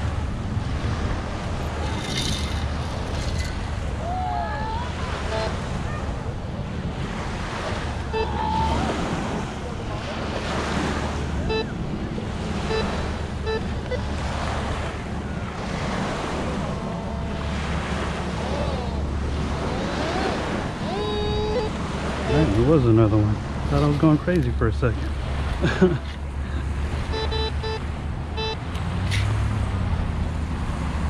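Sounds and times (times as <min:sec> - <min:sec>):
surf washing in: 0:00.0 - 0:31.0
wind buffeting microphone: 0:00.0 - 0:31.0
metal detector beeps: 0:08.1 - 0:08.6, 0:11.4 - 0:11.8, 0:12.6 - 0:14.1, 0:27.1 - 0:27.8, 0:28.4 - 0:28.6.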